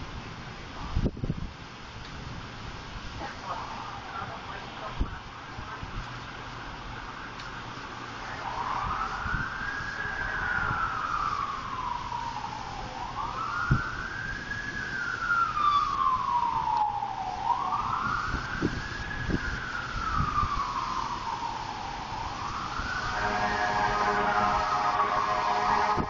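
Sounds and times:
siren wailing: 6.9s - 26.0s.

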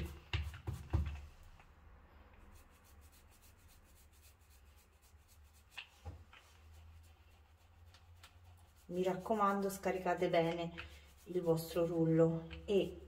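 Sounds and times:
paint roller rubbing in tray: 2.6s - 13.0s.

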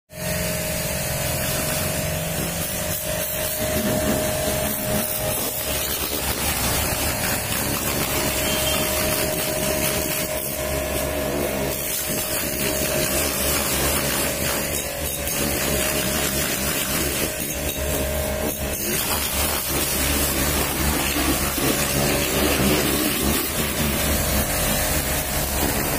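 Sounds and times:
washer pump motor hum: 0.1s - 25.9s
pressure washer spray hissing: 0.2s - 14.7s, 18.8s - 25.9s.

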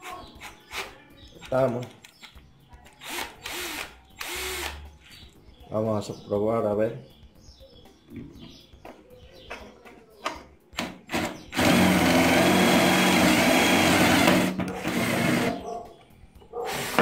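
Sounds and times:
cordless drill boring into wood: 3.0s - 4.8s, 11.1s - 15.5s, 16.7s - 17.0s.

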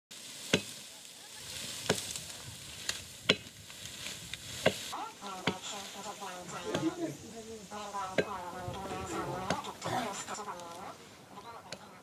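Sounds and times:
hand tool chopping maize stalks: 0.1s - 0.9s, 1.5s - 5.8s.

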